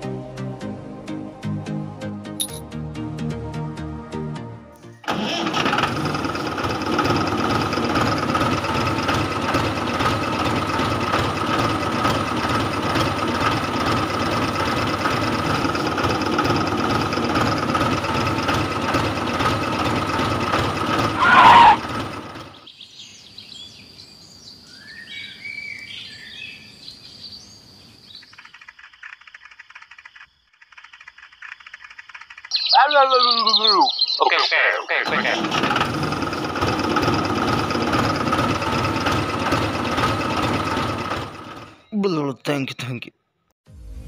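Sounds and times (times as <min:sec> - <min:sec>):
toy tractor whirring: 0:05.1 - 0:22.6, 0:28.2 - 0:32.5
faint bird chirps: 0:22.6 - 0:35.0.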